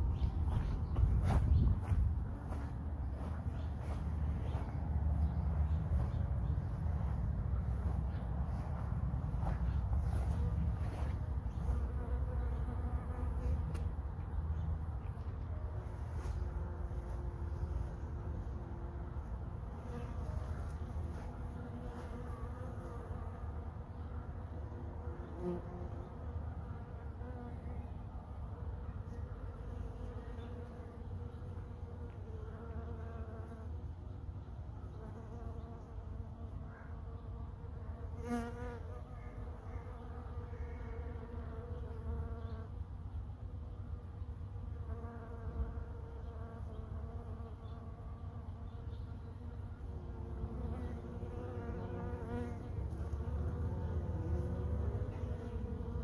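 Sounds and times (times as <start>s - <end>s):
bumblebee buzzing: 0.0s - 14.0s, 15.7s - 27.7s, 29.2s - 33.8s, 34.9s - 42.8s, 44.7s - 56.0s.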